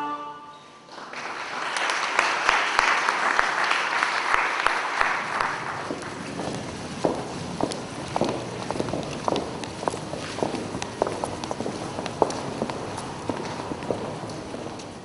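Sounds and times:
audience applauding: 0:00.9 - 0:06.8.

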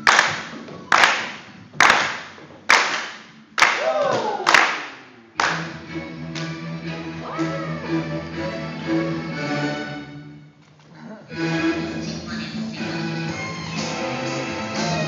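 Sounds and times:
echoing hand claps: 0:00.0 - 0:05.7
music with held string notes: 0:05.4 - 0:10.4.

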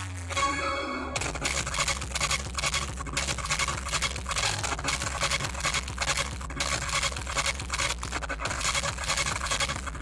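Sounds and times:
loud distorted music with deep bass: 0:00.0 - 0:10.0.

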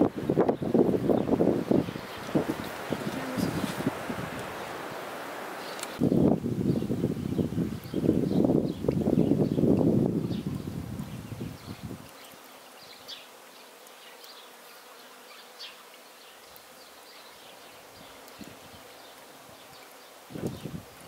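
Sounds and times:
flying insect buzzing: 0:00.0 - 0:06.1, 0:10.2 - 0:21.0
small birds chirping: 0:00.5 - 0:21.0
low thumps and rustles: 0:02.2 - 0:04.7.

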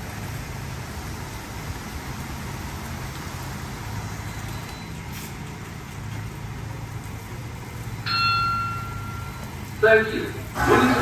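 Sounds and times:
car wash water whoosh: 0:00.0 - 0:08.0.

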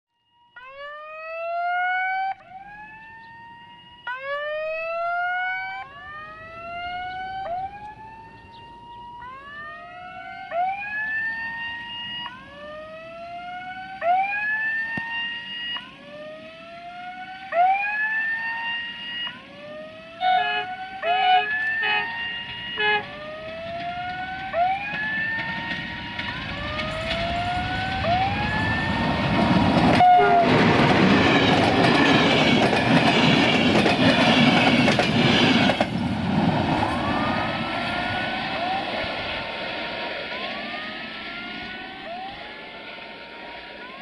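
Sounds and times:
siren whooping: 0:00.2 - 0:35.8, 0:36.4 - 0:44.0
locomotive horn blast: 0:20.1 - 0:23.4, 0:29.9 - 0:32.3.

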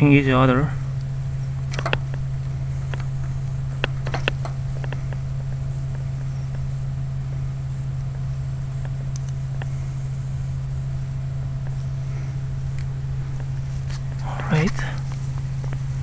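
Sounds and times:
steady low hum: 0:00.0 - 0:16.0
connectors clicking off terminals: 0:01.0 - 0:05.3, 0:08.8 - 0:09.7.

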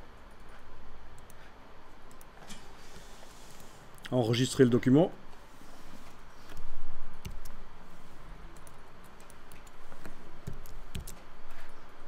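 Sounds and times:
keyboard keys clicking: 0:07.2 - 0:07.6, 0:08.6 - 0:11.2.

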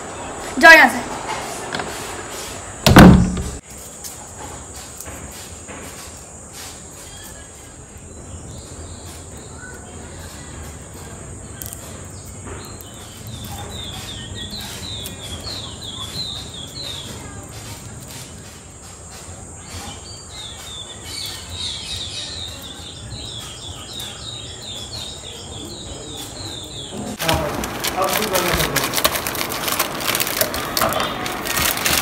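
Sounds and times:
door slamming: 0:02.8 - 0:03.6
bird chirping: 0:07.0 - 0:17.4, 0:19.6 - 0:27.2.

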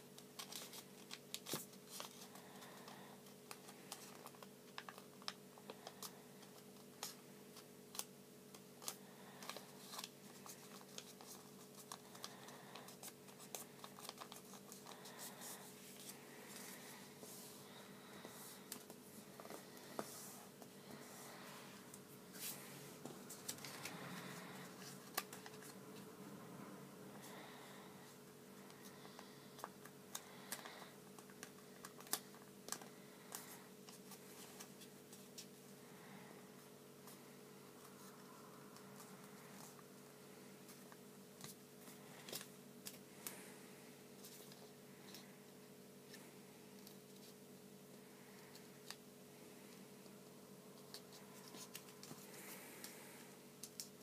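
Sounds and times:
faint steady hum: 0:00.0 - 0:54.0
paper being folded: 0:03.5 - 0:17.0.

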